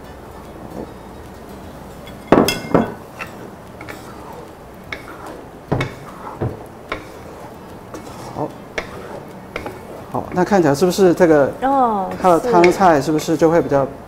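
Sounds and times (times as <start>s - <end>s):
dishware clattering: 2.0s - 10.9s, 12.1s - 13.1s
wooden spatula scraping in wok: 3.0s - 11.4s, 12.1s - 13.1s.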